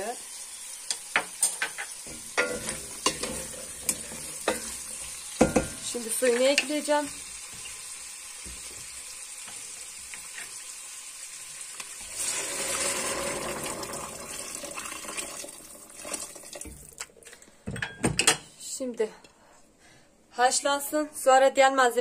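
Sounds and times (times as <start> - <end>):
food sizzling in pot: 0.0 - 16.9
water pouring with hiss: 7.5 - 17.0.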